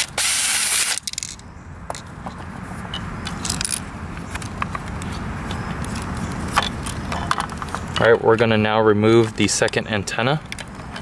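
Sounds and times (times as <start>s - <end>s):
plastic parts clicking and rattling: 0.9s - 2.1s, 3.2s - 8.1s.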